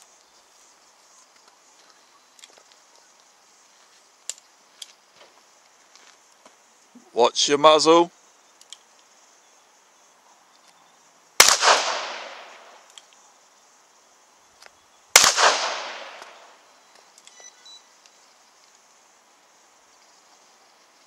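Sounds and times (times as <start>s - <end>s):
revolver shots with echo: 11.4s - 12.7s, 15.2s - 16.4s.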